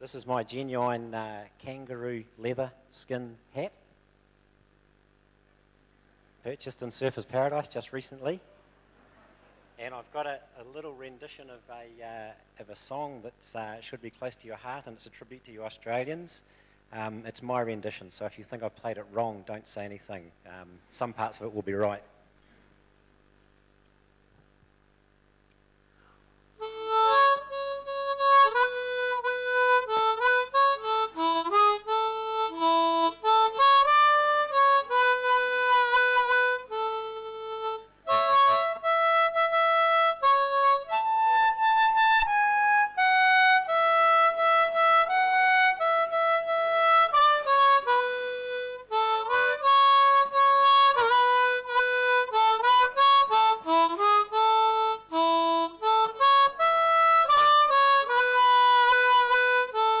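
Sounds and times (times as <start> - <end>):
harmonica melody: 26.6 - 60.0.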